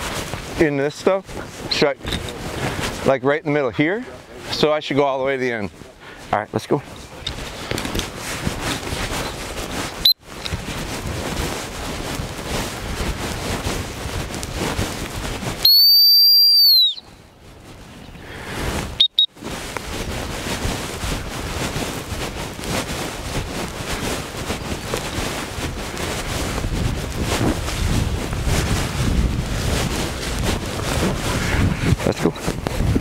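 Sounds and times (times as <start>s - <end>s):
wind noise on microphone: 0.0s - 33.0s
dog training whistle: 15.6s - 17.0s, 19.0s - 19.3s.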